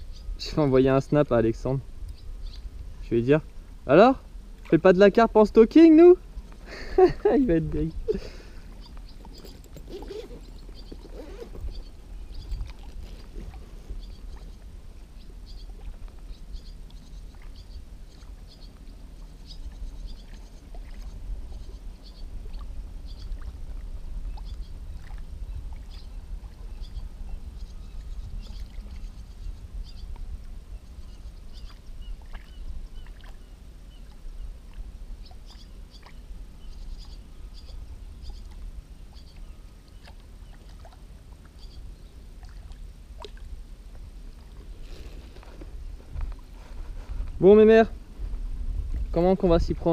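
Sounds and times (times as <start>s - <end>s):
steady low rumble: 0.0s - 49.9s
water lapping against float: 8.1s - 21.8s, 22.4s - 26.6s, 31.5s - 36.4s, 37.0s - 47.4s
small ticks and drips: 15.5s - 26.1s, 31.2s - 33.4s, 34.0s - 41.8s.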